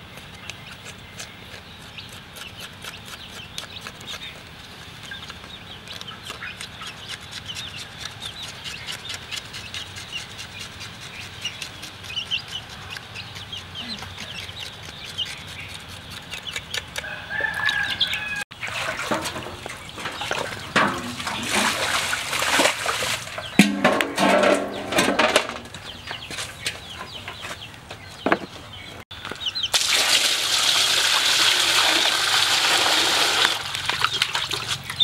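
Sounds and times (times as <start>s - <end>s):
chickens clucking: 0.0s - 29.7s
hands scrubbing wet hide: 1.9s - 23.6s.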